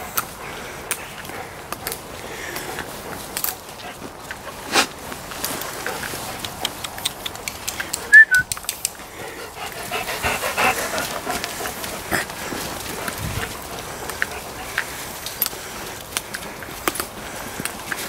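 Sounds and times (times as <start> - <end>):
light clicks and rustling: 0.1 - 9.8, 10.8 - 18.0
dog yelping: 8.1 - 8.4.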